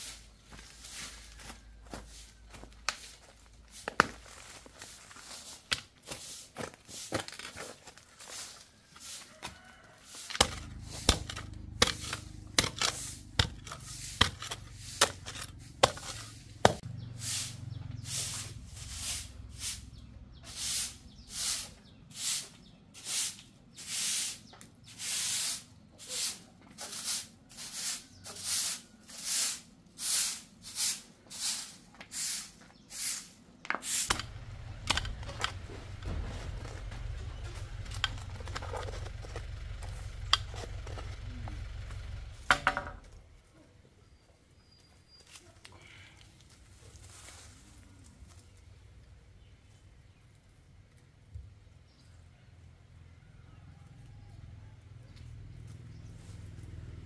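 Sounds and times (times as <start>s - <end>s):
digging bar knocking into soil: 10.3s - 16.8s.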